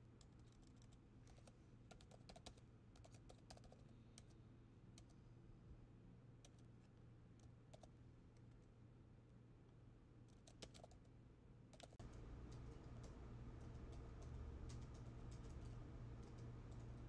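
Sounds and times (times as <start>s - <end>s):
low room hum: 0.0s - 17.0s
typing on laptop keyboard: 0.2s - 4.4s, 7.4s - 8.0s, 10.3s - 11.1s, 11.7s - 17.0s.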